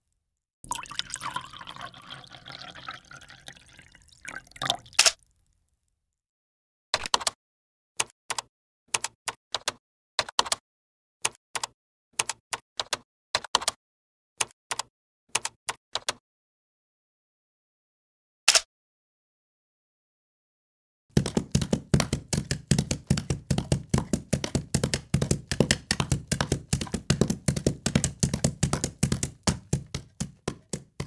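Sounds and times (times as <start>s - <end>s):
kitchen tap running: 0.7s - 4.9s
sharp knocks: 21.1s - 31.0s.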